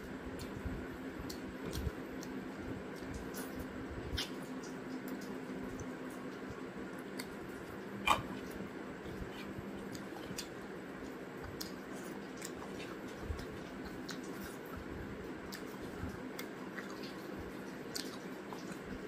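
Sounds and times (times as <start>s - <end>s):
chewing: 0.0s - 19.0s
low steady hum: 0.0s - 19.0s
wet clicks and smacks: 9.9s - 14.6s.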